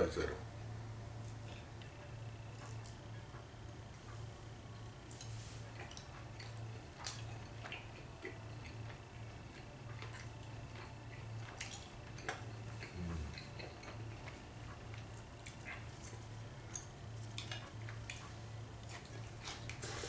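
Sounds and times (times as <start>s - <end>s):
low hum: 0.0s - 20.0s
chewing clicks: 4.8s - 19.8s.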